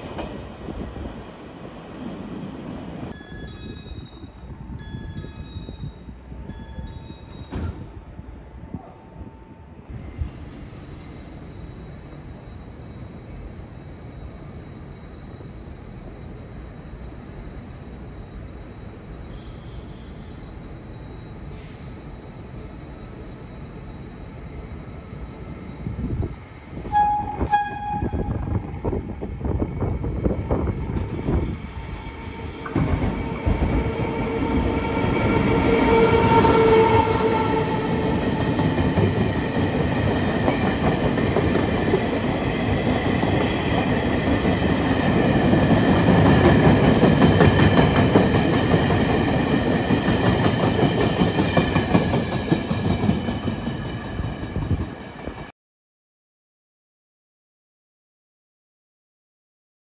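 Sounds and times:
steady locomotive whine: 0.0 - 55.5
train rumble and wheel clatter: 0.0 - 55.5
train horn: 26.8 - 28.6, 34.0 - 38.0.

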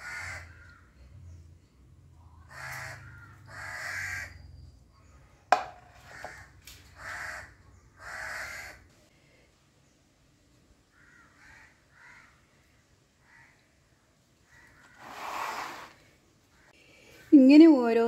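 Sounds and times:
crow cawing: 0.0 - 0.9, 2.4 - 4.4, 6.0 - 8.9, 10.9 - 12.4, 13.2 - 13.6, 14.5 - 15.0.

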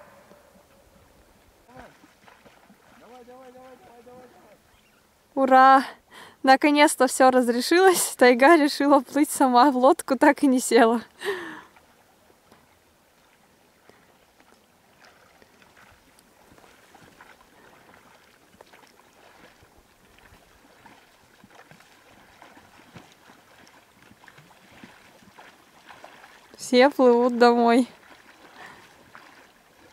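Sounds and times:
distant splashing of oars: 0.0 - 5.2, 11.2 - 29.9.

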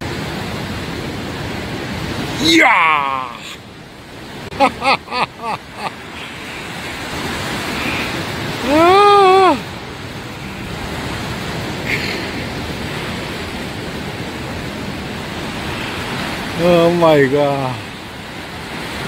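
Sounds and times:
surf: 0.0 - 19.0
wind: 0.0 - 19.0
man shouting excitedly: 2.3 - 3.6, 8.6 - 9.6.

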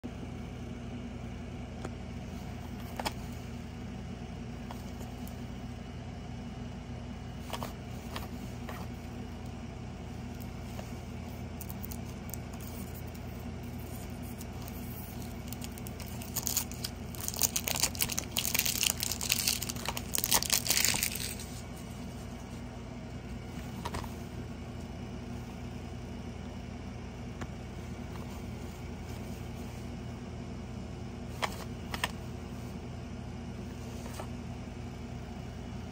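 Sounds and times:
steady low hum: 0.0 - 35.9
plastic wrapping crinkling: 11.6 - 21.7.

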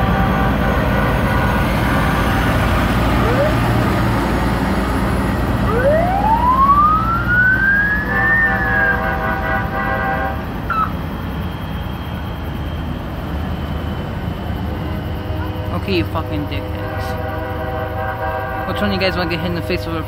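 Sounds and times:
emergency siren rising: 0.0 - 16.5
low rumble of vehicle engines: 0.0 - 20.0
vehicle horn blasting: 8.0 - 10.9, 15.5 - 19.9.

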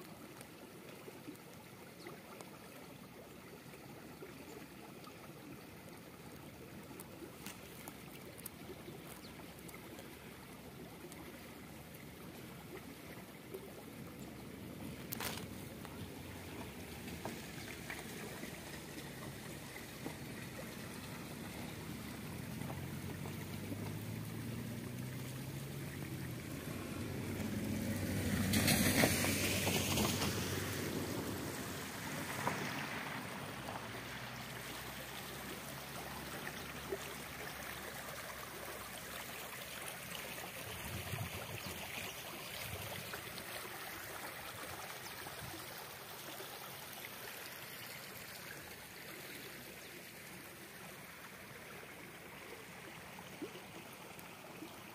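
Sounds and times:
mountain stream rushing: 0.0 - 54.9.

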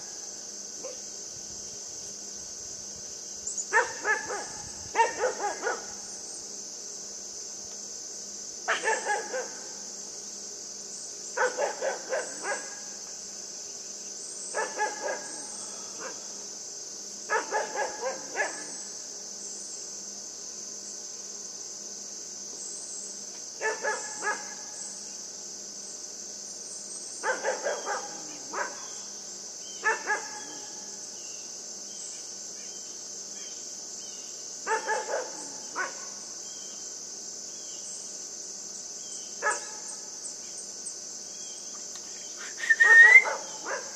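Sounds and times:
insects chirring: 0.0 - 43.9
puppy barking: 3.8 - 5.9, 8.7 - 9.6, 11.4 - 12.8, 14.6 - 15.4, 17.3 - 18.7, 23.6 - 24.5, 27.2 - 28.8, 29.8 - 30.6, 34.7 - 36.0, 42.8 - 43.9.

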